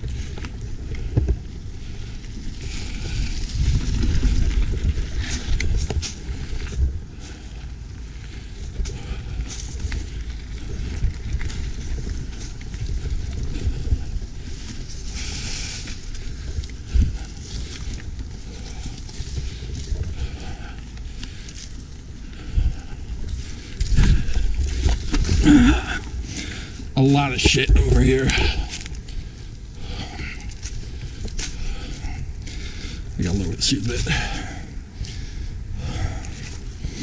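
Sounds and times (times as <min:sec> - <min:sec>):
wind on microphone: 0:00.0 - 0:20.7, 0:22.2 - 0:33.2
bike tyres rumbling over leaves: 0:00.0 - 0:37.0.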